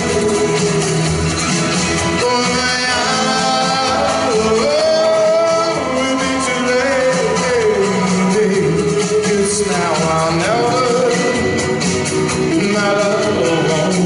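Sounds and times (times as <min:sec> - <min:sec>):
slow latin ballad music: 0:00.0 - 0:14.0.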